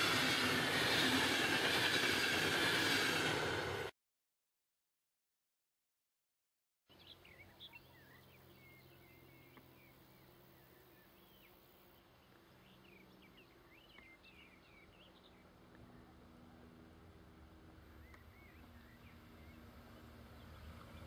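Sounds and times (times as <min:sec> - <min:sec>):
small birds chirping: 0:06.9 - 0:16.1, 0:17.8 - 0:21.0.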